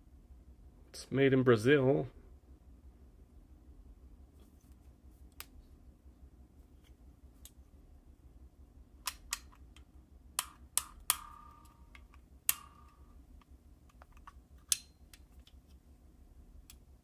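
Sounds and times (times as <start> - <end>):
sharp clicks and metal taps: 9.0 - 15.8.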